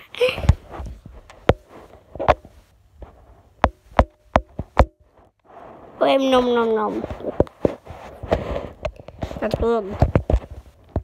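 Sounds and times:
taps on a phone: 3.6s - 5.0s.

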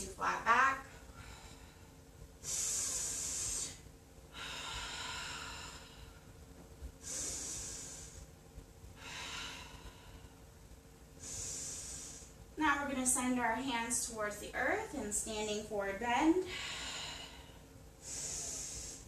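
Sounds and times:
woman breathing deeply: 0.9s - 6.4s, 7.0s - 12.6s, 16.4s - 19.0s.

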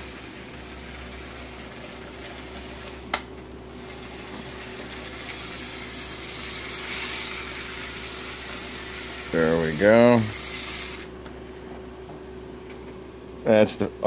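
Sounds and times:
toy train running on track: 0.0s - 3.0s, 3.7s - 11.1s.

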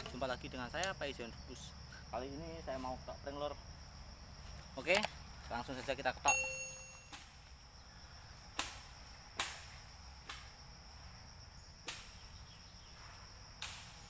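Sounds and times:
high-pitched insect drone: 0.0s - 14.0s
blade chopping bamboo: 8.6s - 10.5s.

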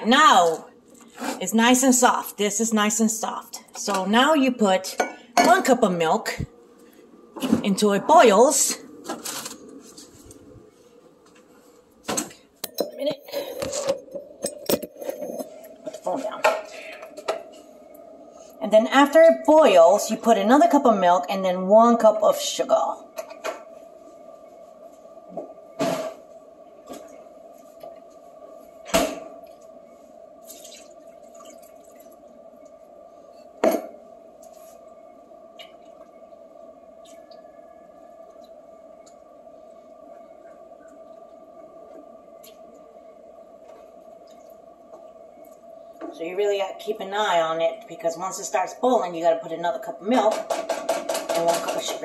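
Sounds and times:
steady hum: 0.0s - 52.0s.

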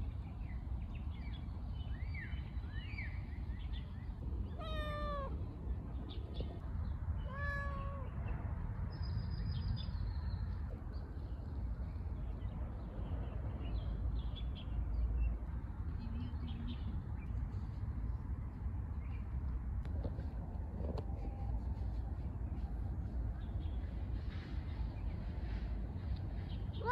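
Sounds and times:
cat meowing: 4.5s - 5.4s, 7.2s - 8.2s.

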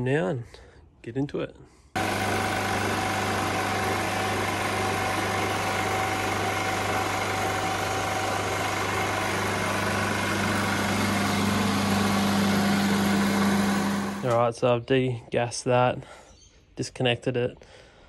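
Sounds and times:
recovery machine humming: 2.0s - 14.4s.

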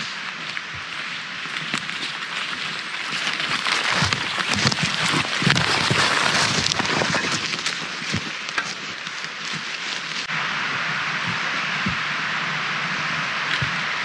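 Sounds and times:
brushing through undergrowth: 0.0s - 10.3s
footsteps crunching through leaves: 0.0s - 10.3s.

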